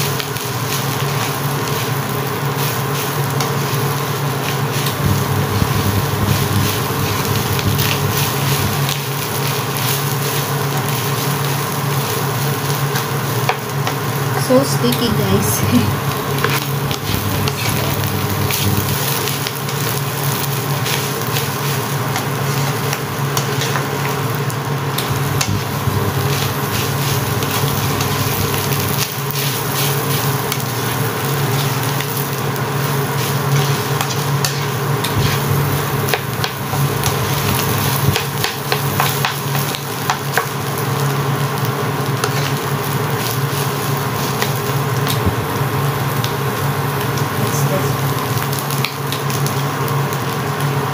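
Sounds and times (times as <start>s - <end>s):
fried rice sizzling in a pan: 0.0s - 50.9s
spatula stirring and scraping: 25.0s - 30.8s, 32.9s - 40.2s, 42.2s - 42.6s.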